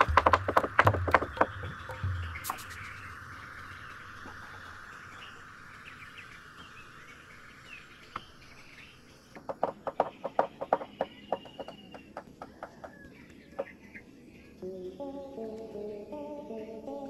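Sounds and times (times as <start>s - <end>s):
sharp knocks: 0.0s - 2.8s, 9.4s - 12.9s
birds chirping: 0.0s - 17.0s
insects droning: 0.0s - 17.0s.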